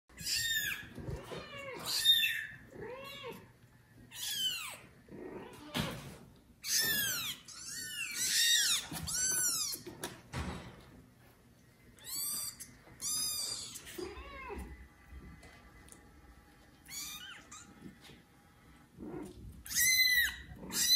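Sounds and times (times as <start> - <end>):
newborn kittens meowing: 0.2 - 3.5, 4.1 - 5.9, 6.6 - 9.9, 12.0 - 14.7, 16.8 - 17.9, 19.1 - 20.9.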